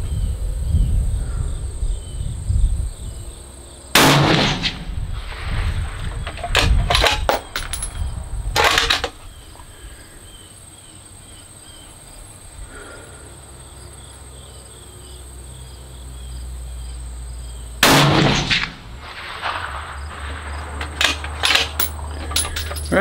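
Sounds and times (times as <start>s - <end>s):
insect chirping: 0.0s - 3.9s, 9.1s - 17.8s, 18.8s - 23.0s
rifle shot: 4.0s - 5.0s, 17.8s - 21.8s
loud clatter: 6.0s - 8.0s, 18.1s - 23.0s.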